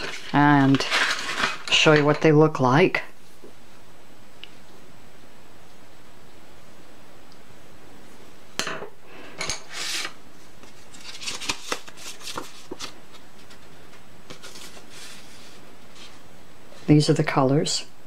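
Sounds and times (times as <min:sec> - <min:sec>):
paper rustling: 0:00.0 - 0:02.2, 0:09.7 - 0:16.2.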